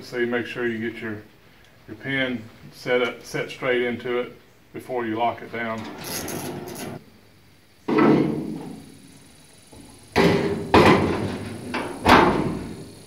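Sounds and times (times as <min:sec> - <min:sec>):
metal hood clunking shut: 0:07.9 - 0:08.8, 0:09.8 - 0:12.9.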